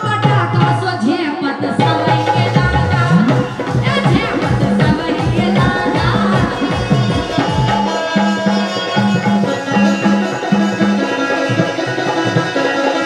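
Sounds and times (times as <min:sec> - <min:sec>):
hand drums beating: 0:01.7 - 0:13.0.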